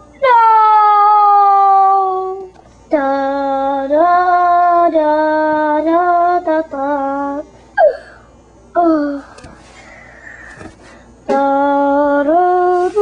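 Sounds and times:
high voice singing wordless tune: 11.3 - 13.0.

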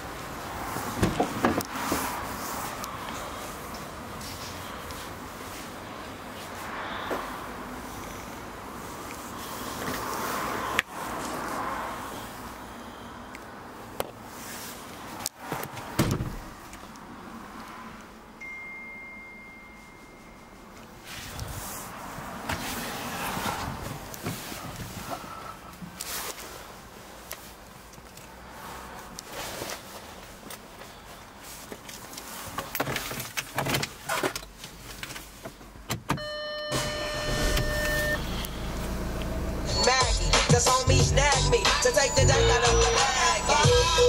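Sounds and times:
electronic dashboard chime: 18.4 - 20.6, 36.2 - 40.5
high electronic warning tone: 36.2 - 44.0
low hum: 36.8 - 39.9.

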